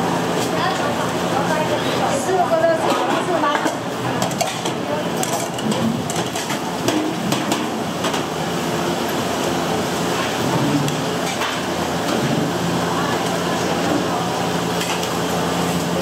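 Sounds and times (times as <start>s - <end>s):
kitchen knocks and clatter: 2.8s - 8.3s.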